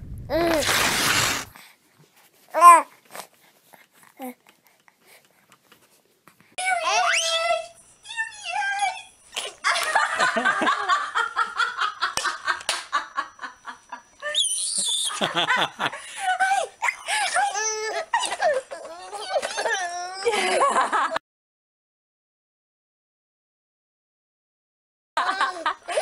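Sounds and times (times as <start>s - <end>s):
baby laughing: 25.2s - 26.0s.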